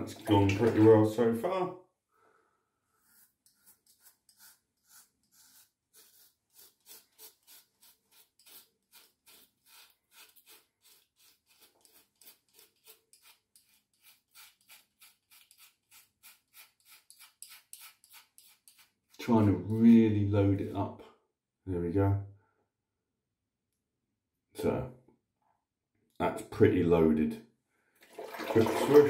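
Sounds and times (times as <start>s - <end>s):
razor scraping through stubble: 3.0s - 19.7s.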